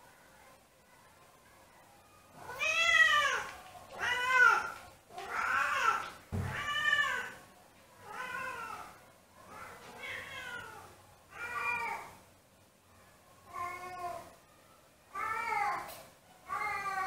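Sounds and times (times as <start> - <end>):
cat meowing: 2.4 - 7.4, 9.9 - 12.2.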